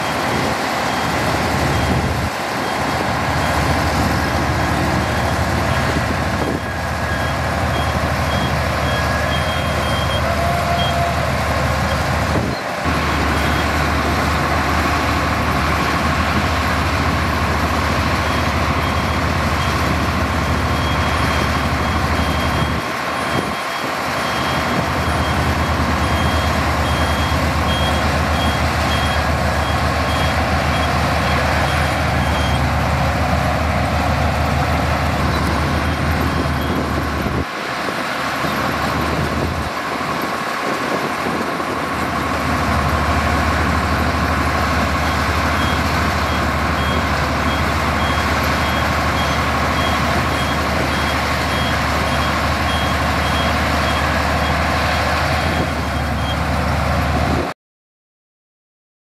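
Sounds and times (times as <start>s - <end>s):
reversing alarm beeping: 0.0s - 15.1s, 16.4s - 33.2s, 34.6s - 37.4s, 44.8s - 54.7s, 55.5s - 56.5s
bulldozer diesel engine running: 0.0s - 57.5s.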